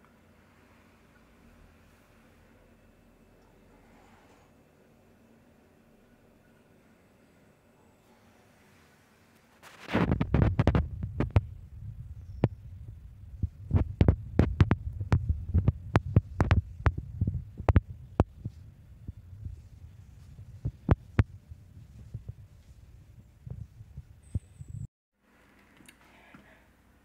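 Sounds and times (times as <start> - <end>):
sharp irregular clicks and crackles: 9.6 - 11.5, 13.7 - 18.6
low rumbling on microphone: 9.9 - 24.9.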